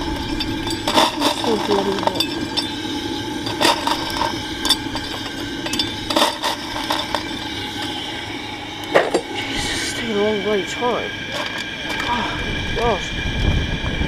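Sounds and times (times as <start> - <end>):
metallic clinks and knocks: 0.0 - 8.0
held tones: 0.0 - 12.6
steady mechanical hum: 0.0 - 14.0.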